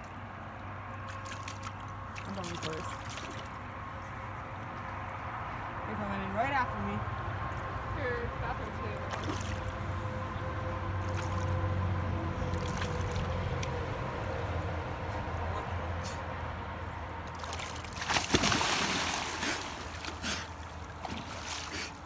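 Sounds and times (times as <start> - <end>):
small splashes: 1.0 - 3.7, 9.1 - 10.0, 11.0 - 13.7, 17.3 - 22.0
person splashing into water: 9.1 - 9.6, 17.4 - 22.0.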